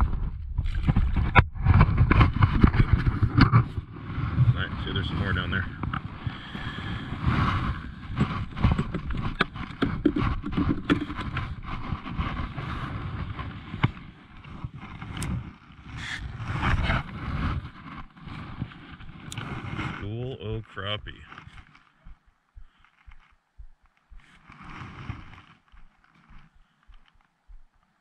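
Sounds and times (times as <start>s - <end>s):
gear knocking and scraping: 7.2s - 15.5s
clothing rustling: 21.1s - 28.0s.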